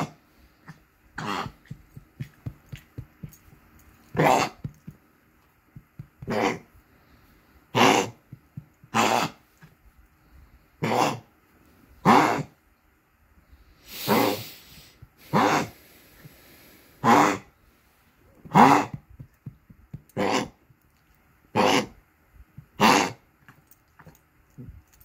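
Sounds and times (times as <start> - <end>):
small dog coughing: 0.0 - 3.1, 5.9 - 6.6, 7.8 - 9.4.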